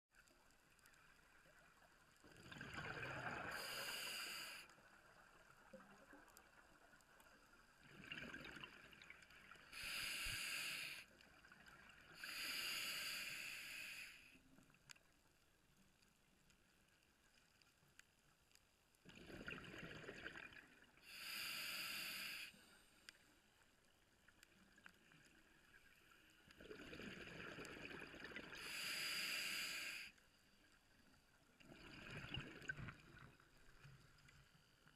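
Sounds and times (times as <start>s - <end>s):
faint water hiss: 0.2s - 34.9s
exhaled bubbles: 2.3s - 3.8s, 7.8s - 9.6s, 19.1s - 20.9s, 26.6s - 28.7s, 31.6s - 33.4s
regulator breathing hiss: 3.5s - 4.7s, 9.7s - 11.1s, 12.2s - 14.4s, 21.1s - 23.1s, 28.6s - 30.2s.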